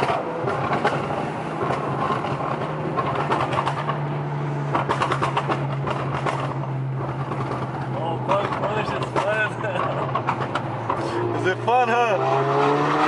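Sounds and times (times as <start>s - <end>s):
exhaust pops and crackles: 0.0s - 11.9s
car engine droning: 0.0s - 13.0s.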